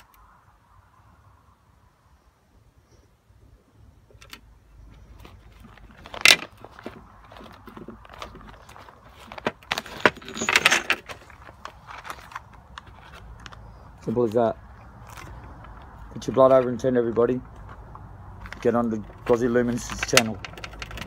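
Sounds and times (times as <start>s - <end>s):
paper rustling: 5.0s - 14.4s.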